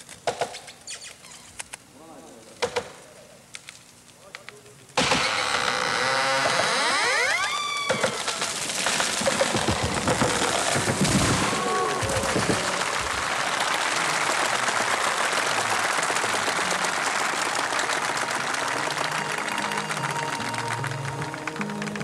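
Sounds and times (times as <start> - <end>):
tree crashing down: 7.8 - 13.3
crowd applauding: 9.5 - 22.0.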